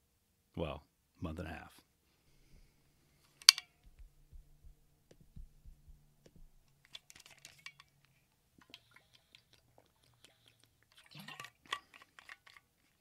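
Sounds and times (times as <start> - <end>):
low steady hum: 2.3 - 10.0.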